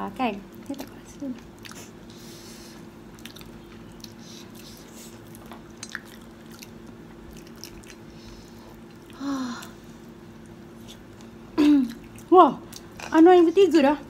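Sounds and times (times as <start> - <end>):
steady low hum: 0.0 - 14.0
chewing and biting food: 0.5 - 2.0, 3.0 - 9.2
wet mouth sounds: 3.2 - 8.1.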